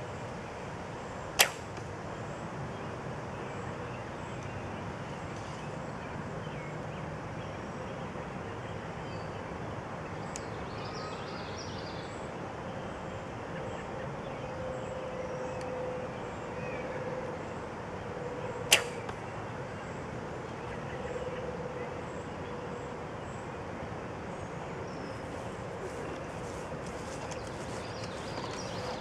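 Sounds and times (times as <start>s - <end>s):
bow string snap: 1.4s - 1.8s, 18.7s - 19.2s.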